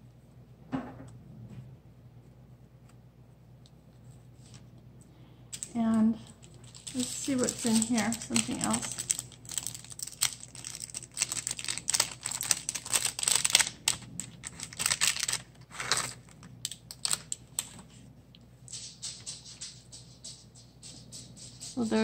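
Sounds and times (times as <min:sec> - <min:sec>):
plastic sequins clicking and rattling: 0:05.5 - 0:17.8
plastic packet crinkling: 0:05.5 - 0:17.9.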